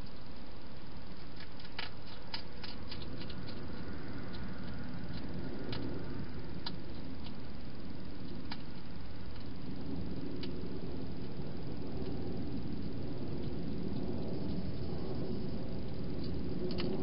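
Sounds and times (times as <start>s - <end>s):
steady hiss: 0.0s - 17.0s
hedgehog chewing clicks: 1.2s - 6.0s, 6.6s - 7.4s, 16.2s - 17.0s.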